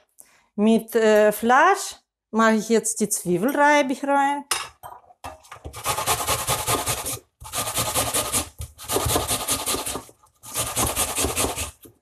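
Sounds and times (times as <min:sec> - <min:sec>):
onion scraping on metal grater: 0:05.7 - 0:11.9.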